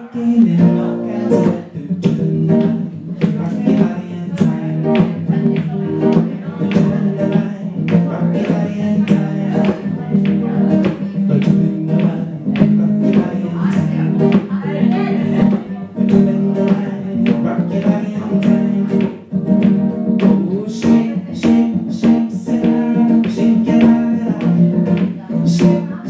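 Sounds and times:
acoustic guitar strumming: 0:00.0 - 0:26.0
man singing: 0:00.0 - 0:26.0.

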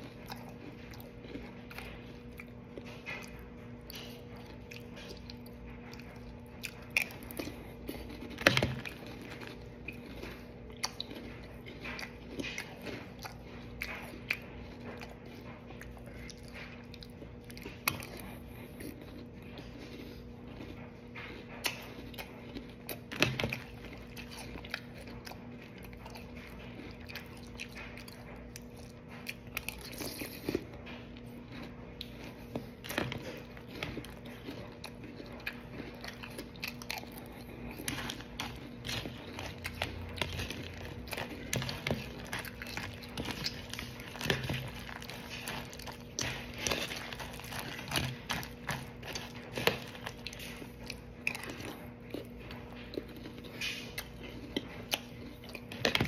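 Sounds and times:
crunchy cereal chewing: 0:00.0 - 0:56.0
faint steady hum: 0:00.0 - 0:56.0.

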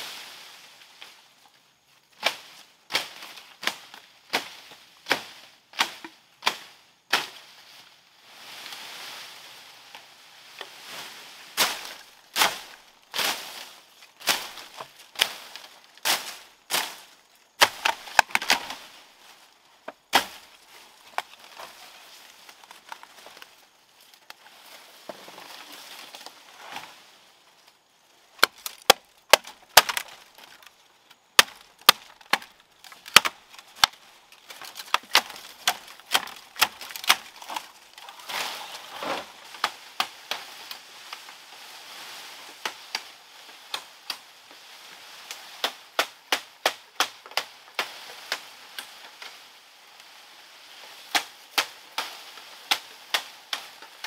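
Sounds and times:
machete chopping bamboo: 0:02.2 - 0:07.4, 0:11.6 - 0:13.5, 0:17.6 - 0:18.8, 0:20.1 - 0:20.4, 0:28.4 - 0:30.6, 0:31.4 - 0:38.1, 0:45.6 - 0:48.4, 0:51.1 - 0:52.1.

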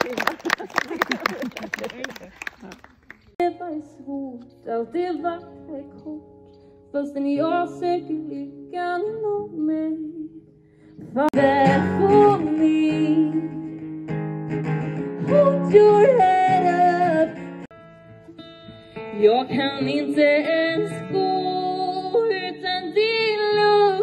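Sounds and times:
woman singing: 0:03.4 - 0:13.9, 0:15.2 - 0:17.5, 0:19.1 - 0:24.0
acoustic guitar strumming: 0:11.4 - 0:23.8.

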